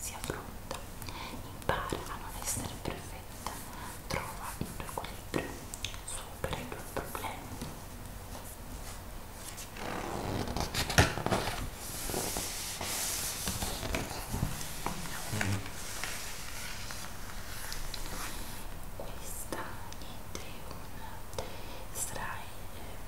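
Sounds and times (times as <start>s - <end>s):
fingers sliding over glossy pages: 10.4s - 18.7s.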